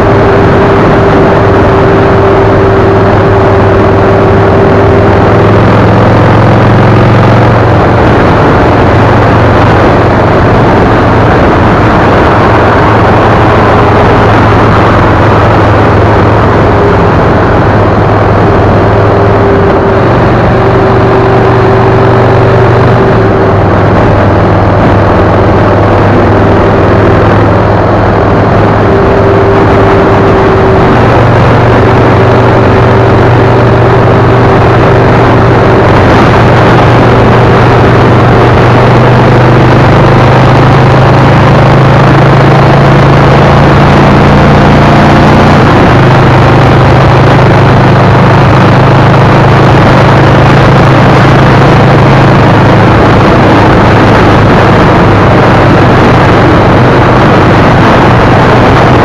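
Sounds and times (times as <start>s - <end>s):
car engine hum: 0.0s - 59.0s
road noise: 0.0s - 59.0s.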